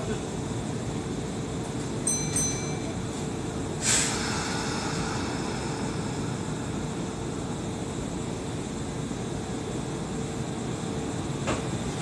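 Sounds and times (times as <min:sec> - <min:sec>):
low station rumble: 0:00.0 - 0:12.0
train equipment humming: 0:00.0 - 0:12.0
compressed air hiss: 0:03.8 - 0:07.9.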